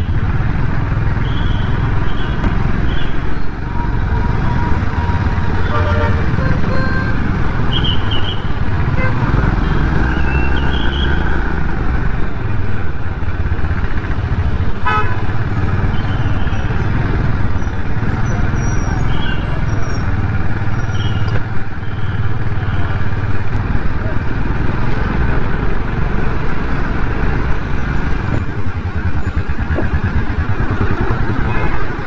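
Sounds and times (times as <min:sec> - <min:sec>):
vehicle horn toot: 0:05.6 - 0:08.0, 0:14.8 - 0:15.2.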